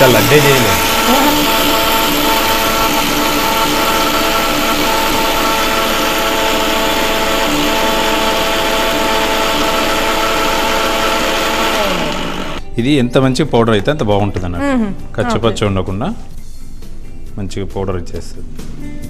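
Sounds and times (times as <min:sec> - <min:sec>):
jar grinding lentils: 0:00.0 - 0:12.6
mixer grinder motor whine: 0:00.0 - 0:12.6.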